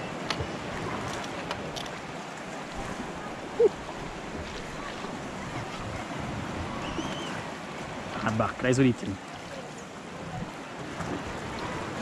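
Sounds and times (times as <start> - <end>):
wind on microphone: 2.7 - 8.2.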